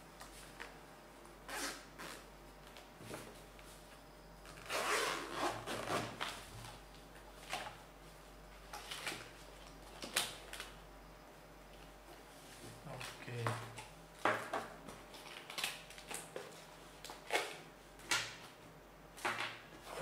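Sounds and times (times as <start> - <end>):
zipper pulled open: 1.5 - 2.2, 4.5 - 6.2.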